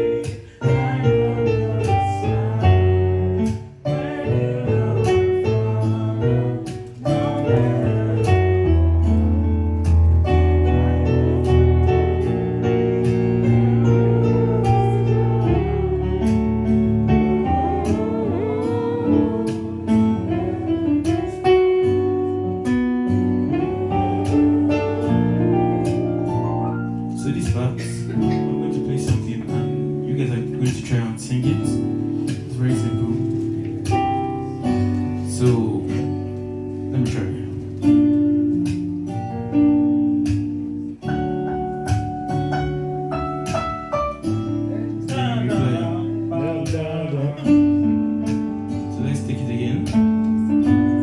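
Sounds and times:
man singing into microphone: 0.0s - 8.9s, 45.0s - 48.0s
synthesizer keyboard chords: 0.0s - 51.0s.

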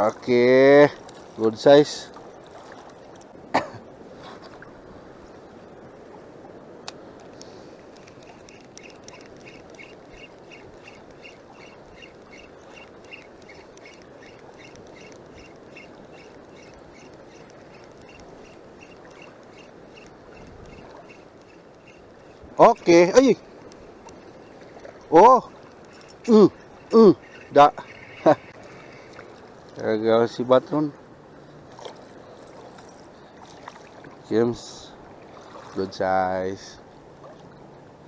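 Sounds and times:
shallow sea water washing: 0.0s - 38.0s
fishing reel ticking: 7.4s - 20.1s, 20.7s - 22.3s, 25.7s - 26.3s.

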